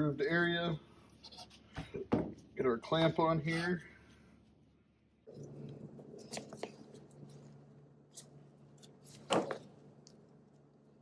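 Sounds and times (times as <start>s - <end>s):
low steady hum: 0.0s - 11.0s
handling noises: 5.3s - 10.8s.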